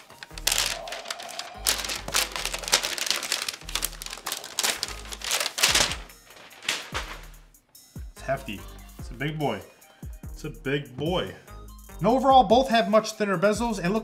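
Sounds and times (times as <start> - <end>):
paper packaging crinkling: 0.0 - 7.4
background music with bass line: 4.9 - 12.8, 13.6 - 14.0.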